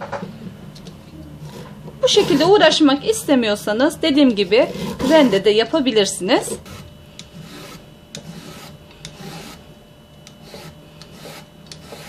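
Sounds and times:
peeler scraping zucchini: 1.4s - 2.8s, 4.1s - 5.5s, 6.4s - 9.6s, 10.2s - 12.0s.

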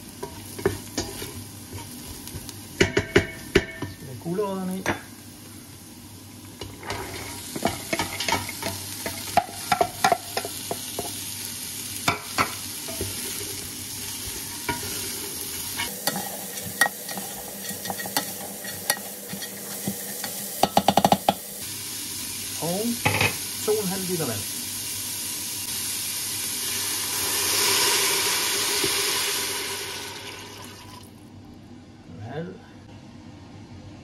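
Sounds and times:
vegetables sizzling in hot oil: 0.0s - 31.1s
spoon scraping a pot: 14.7s - 20.5s.

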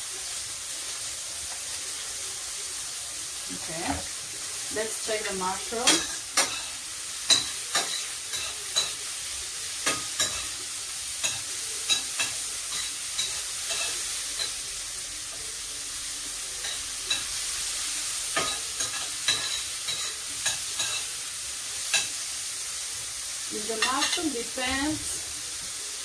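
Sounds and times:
mushrooms sizzling in a frying pan: 0.0s - 26.0s
spoon scraping and clinking on pan: 18.4s - 21.1s.

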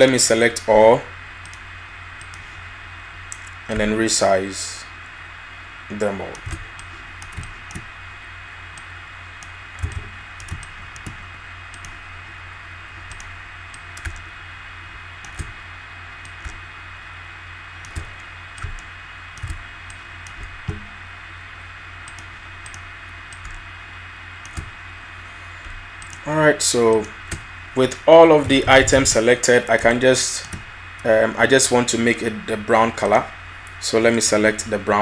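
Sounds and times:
low hum: 0.0s - 35.0s
computer keyboard keys clicking: 6.3s - 7.9s, 9.4s - 12.0s, 13.0s - 14.3s, 15.2s - 15.6s, 16.2s - 16.6s, 17.8s - 20.8s, 22.1s - 23.6s, 24.4s - 24.8s, 25.7s - 26.2s.

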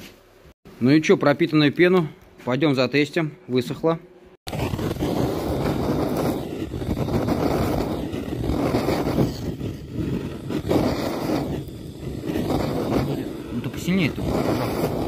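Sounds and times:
gas torch flame rushing: 4.4s - 15.0s.

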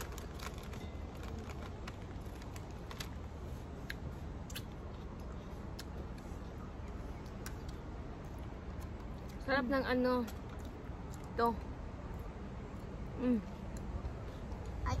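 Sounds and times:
chewing and crunching: 0.0s - 11.4s.

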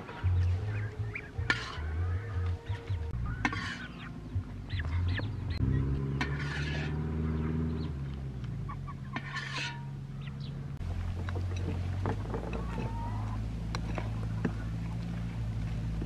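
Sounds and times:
ducks and chickens calling: 0.0s - 8.0s, 8.6s - 14.8s
metal ladle scraping a wok: 1.4s - 2.3s, 3.3s - 4.2s, 6.1s - 7.2s, 9.0s - 10.0s.

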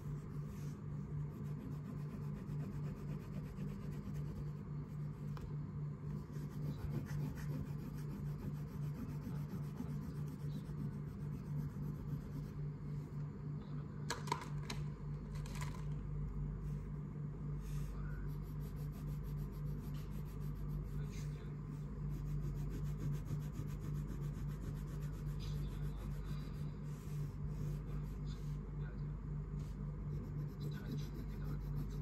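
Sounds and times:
pencil shading on paper: 0.0s - 5.5s, 6.1s - 12.6s, 17.6s - 21.3s, 22.0s - 28.6s, 29.6s - 32.0s
pulsing low hum: 0.0s - 13.7s, 16.2s - 32.0s.

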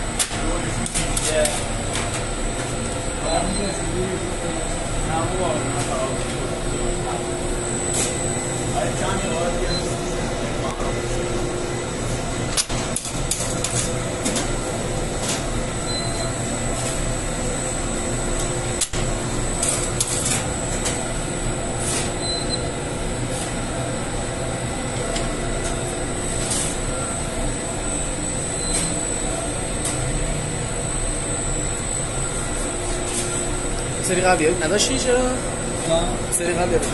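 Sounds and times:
bakery machinery running: 0.0s - 36.9s
thin high whine: 3.0s - 12.7s, 24.8s - 36.8s.

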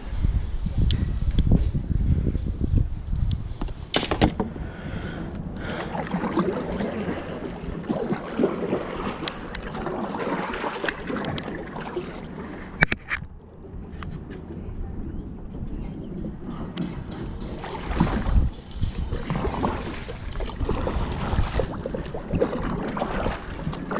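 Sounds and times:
sharp knocks: 3.9s - 4.5s
paddle splashing water: 3.9s - 13.2s, 16.2s - 23.9s.

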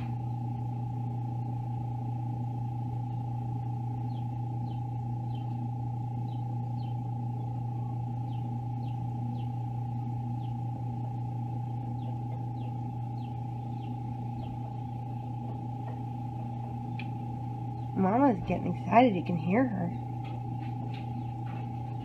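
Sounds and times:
incubator humming: 0.0s - 22.0s
chick peeping: 11.8s - 16.0s.

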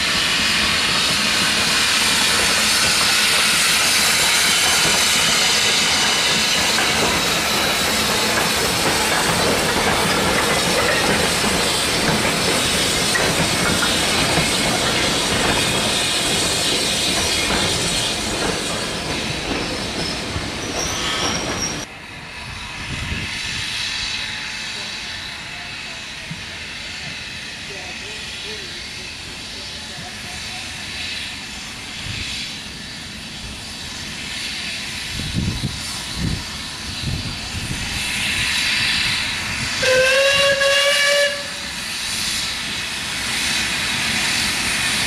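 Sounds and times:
train wagons rolling by: 0.0s - 21.9s
steam locomotive hissing steam: 0.0s - 45.0s.

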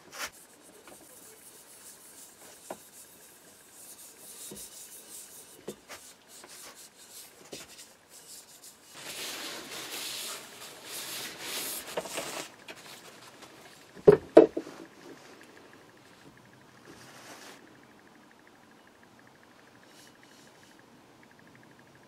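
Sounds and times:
paper towel wiping: 0.0s - 13.4s
tool knocking on wooden workbench: 14.0s - 14.6s.

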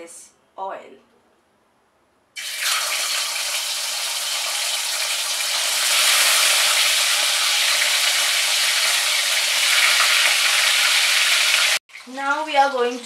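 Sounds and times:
fish sizzling in hot oil: 2.4s - 12.2s.

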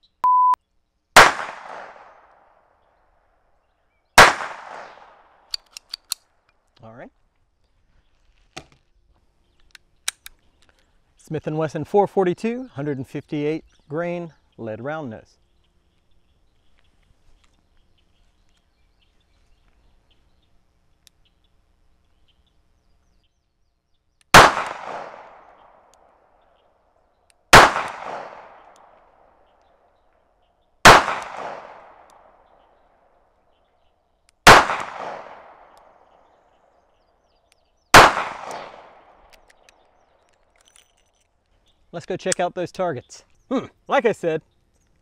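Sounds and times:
revolver gunshots with echo: 1.2s - 2.6s, 4.2s - 5.5s, 24.3s - 26.2s, 27.5s - 29.4s, 30.8s - 32.6s, 34.4s - 36.1s, 37.9s - 39.3s.

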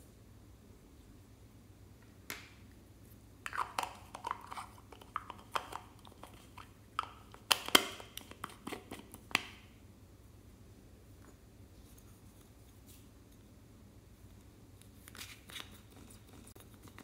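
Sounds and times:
plastic jar clicks and scrapes: 3.5s - 9.4s.

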